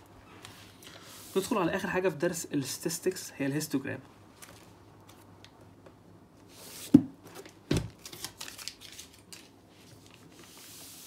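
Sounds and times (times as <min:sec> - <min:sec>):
paper rustling and sliding: 0:08.0 - 0:11.0.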